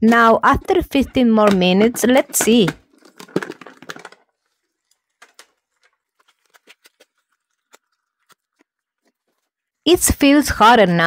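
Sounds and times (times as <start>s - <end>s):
fork stirring pasta in steel container: 0.0s - 7.0s.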